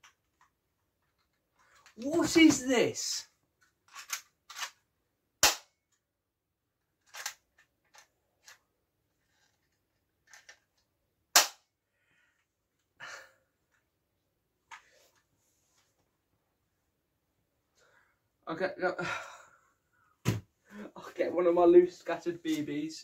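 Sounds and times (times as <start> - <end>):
loud plastic snaps: 5.4 - 5.8, 11.3 - 11.7.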